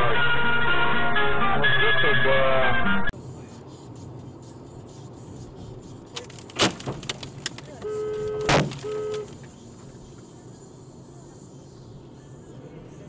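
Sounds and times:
car road noise: 0:03.1 - 0:13.0
car horn blasts: 0:07.7 - 0:09.4
loud bang: 0:08.5 - 0:08.9.

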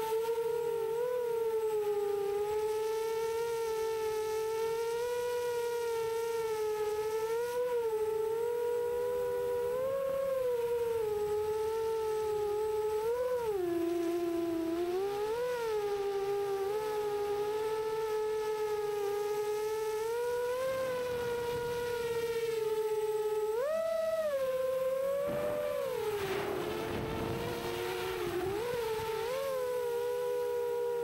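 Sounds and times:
drone propellers whining: 0:07.9 - 0:31.0
rush of air: 0:25.3 - 0:29.5.

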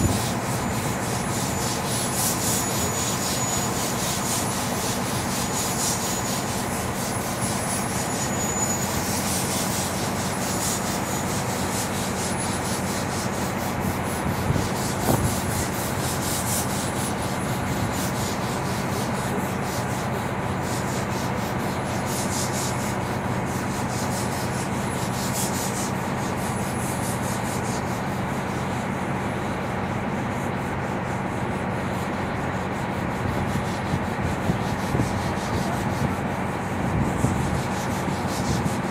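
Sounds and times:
steam train clattering: 0:00.0 - 0:27.8.

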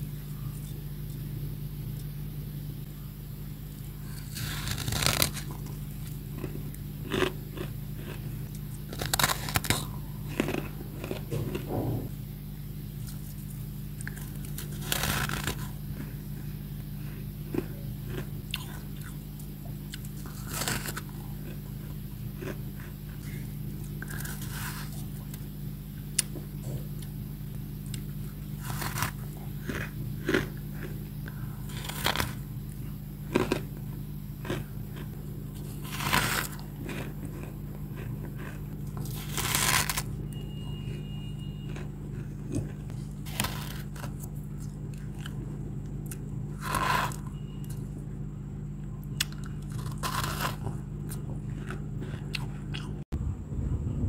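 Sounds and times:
steady low hum: 0:00.0 - 0:54.0
crunching ice in mouth: 0:06.3 - 0:11.7, 0:19.9 - 0:22.9, 0:24.0 - 0:25.1, 0:28.6 - 0:31.0, 0:31.6 - 0:32.4, 0:33.2 - 0:41.0, 0:41.6 - 0:47.9, 0:49.1 - 0:52.9.

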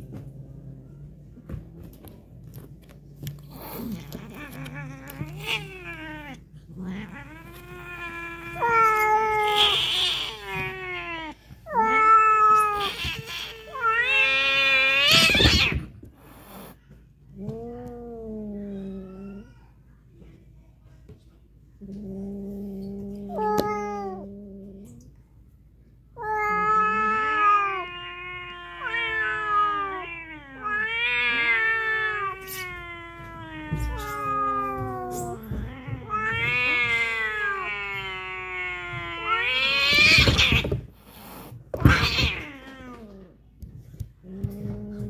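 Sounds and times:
cat growling: 0:00.0 - 0:19.6, 0:21.8 - 0:25.2, 0:26.2 - 0:45.0
cats yowling: 0:03.6 - 0:16.0, 0:17.5 - 0:19.8, 0:26.2 - 0:40.9, 0:41.8 - 0:43.4
harsh cat outbursts: 0:36.0 - 0:40.8.

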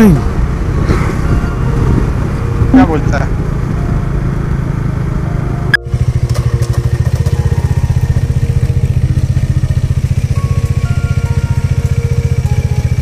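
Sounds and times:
motorcycle engine idling: 0:05.8 - 0:13.0.

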